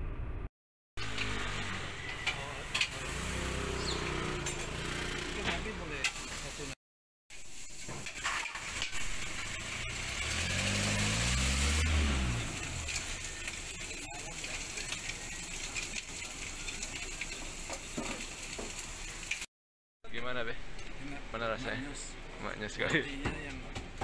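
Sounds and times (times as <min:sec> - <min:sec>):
meat frying on a griddle: 0:01.0 - 0:04.4, 0:05.0 - 0:19.5
vehicle engine passing: 0:01.0 - 0:06.0, 0:09.2 - 0:15.1.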